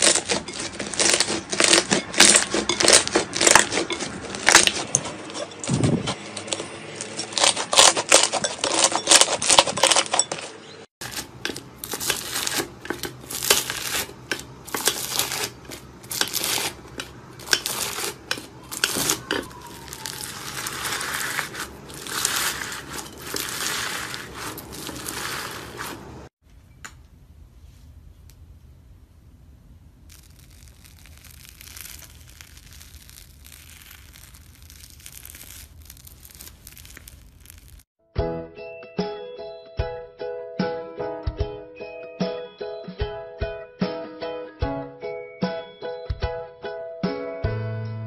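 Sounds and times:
beaded slime crunching: 0.0s - 5.4s, 6.4s - 10.2s, 11.0s - 26.3s, 30.0s - 37.9s
hands squishing slime: 17.4s - 26.1s.

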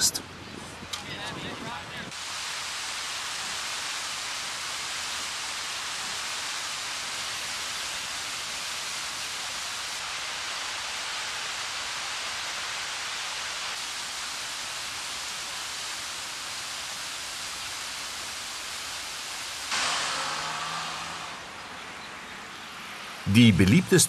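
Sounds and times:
river rapids rushing: 19.0s - 21.9s.

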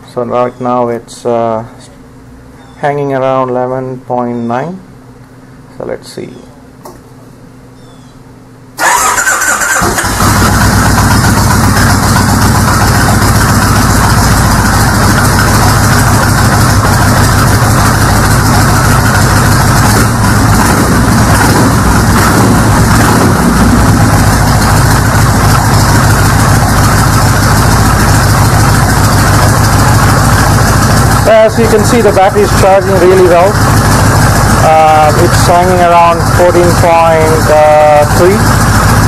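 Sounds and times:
motorcycle engine idling: 8.8s - 39.0s.

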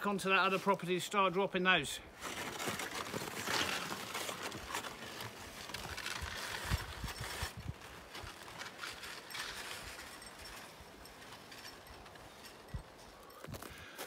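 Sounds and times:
footsteps crunching in snow: 0.2s - 14.0s
sled scraping over snow: 2.2s - 13.1s.

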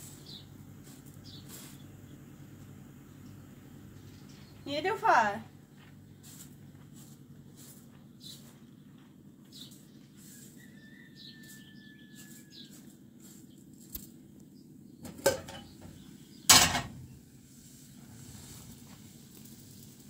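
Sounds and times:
steady low hum: 0.0s - 10.2s
pots and lids clattering: 15.0s - 15.9s, 16.5s - 17.1s
loud metal clang: 16.5s - 17.1s.

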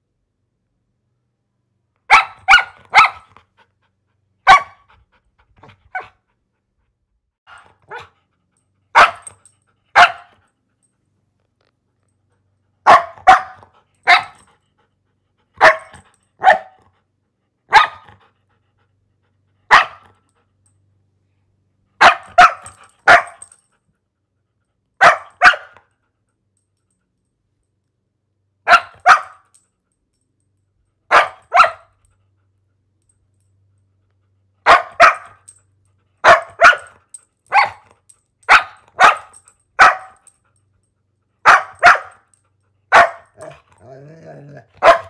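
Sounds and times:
dog barking: 2.1s - 3.3s, 4.4s - 4.9s, 7.5s - 8.1s, 8.9s - 9.4s, 10.0s - 10.4s, 12.8s - 14.4s, 15.6s - 16.8s, 17.7s - 18.1s, 19.7s - 20.1s, 22.0s - 23.5s, 25.0s - 25.8s, 28.6s - 29.4s, 31.1s - 32.0s, 34.6s - 35.4s, 36.2s - 37.9s, 38.5s - 40.2s, 41.4s - 42.3s, 42.9s - 43.6s, 44.8s - 45.0s.

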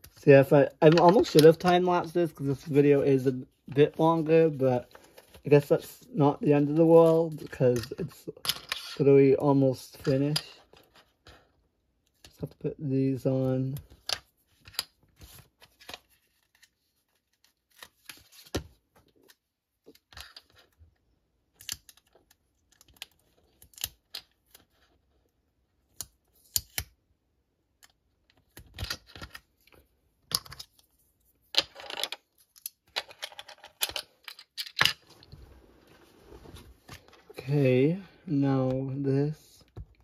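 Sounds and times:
plastic pieces clicking: 21.5s - 24.3s, 31.6s - 35.0s.

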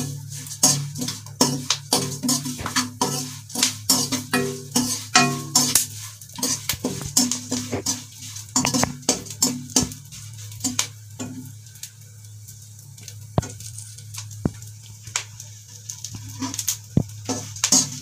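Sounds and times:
metal spoon scraping a pan: 0.0s - 11.6s, 16.2s - 18.0s
seeds rattling in a pan: 0.0s - 18.0s.

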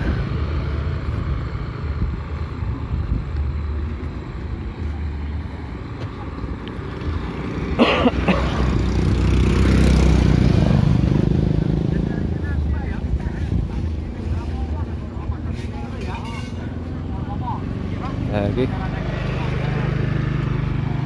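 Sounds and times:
scooters passing engine rumble: 0.0s - 21.0s.

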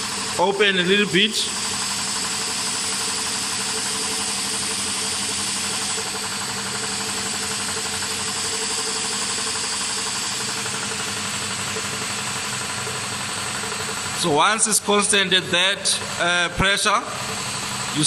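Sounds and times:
air compressor running: 0.0s - 18.0s
compressed air hissing from valve: 1.5s - 12.2s.

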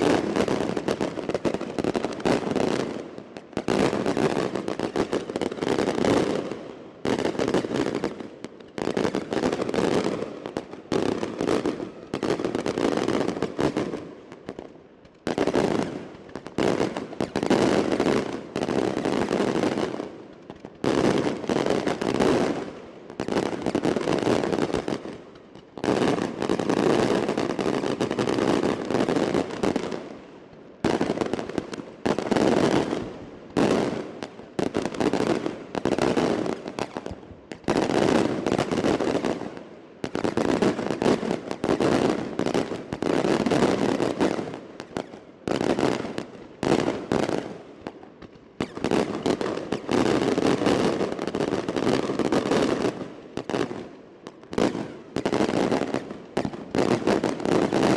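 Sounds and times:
fireworks crackling bangs: 0.0s - 57.9s.

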